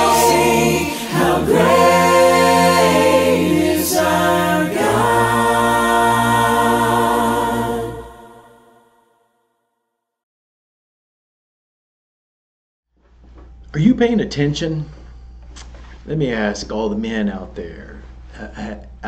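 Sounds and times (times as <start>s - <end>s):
choir singing a cappella hymn: 0.0s - 9.0s.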